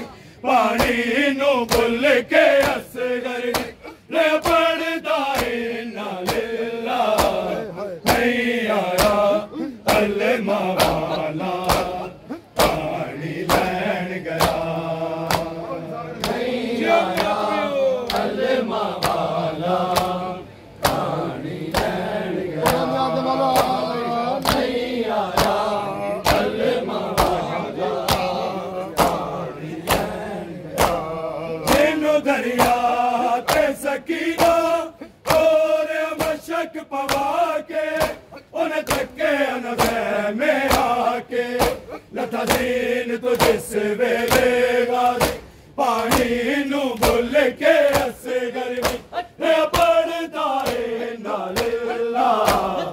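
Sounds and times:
men chanting a lament: 0:00.0 - 0:52.9
hands slapping chests: 0:03.5 - 0:04.6, 0:05.3 - 0:05.6, 0:06.2 - 0:06.5, 0:07.1 - 0:09.2, 0:09.9 - 0:10.2, 0:10.8 - 0:15.6, 0:18.0 - 0:19.3, 0:19.9 - 0:20.2, 0:20.8 - 0:21.1, 0:21.7 - 0:22.0, 0:22.6 - 0:22.9, 0:24.4 - 0:25.6, 0:26.2 - 0:27.4, 0:29.0 - 0:32.0, 0:32.6 - 0:39.2, 0:39.8 - 0:41.0, 0:41.6 - 0:48.2, 0:48.8 - 0:50.9, 0:51.5 - 0:52.8.

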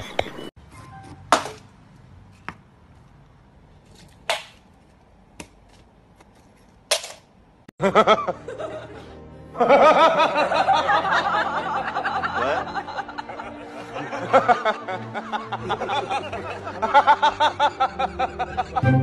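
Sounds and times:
music: 0:07.8 - 0:19.0
people laughing: 0:07.8 - 0:19.0.

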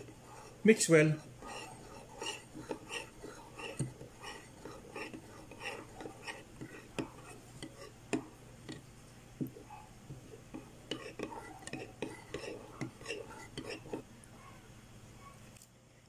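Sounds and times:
spoon scraping and clinking bowl: 0:00.0 - 0:08.8, 0:10.5 - 0:14.0
liquid swishing: 0:00.0 - 0:14.1.

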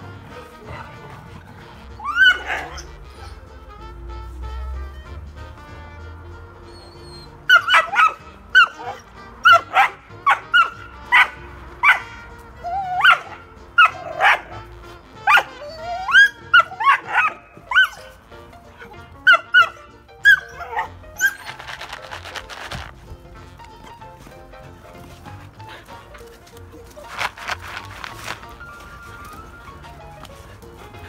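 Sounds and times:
puppy barking and yelping: 0:00.0 - 0:03.5, 0:06.6 - 0:22.9, 0:24.8 - 0:31.0.

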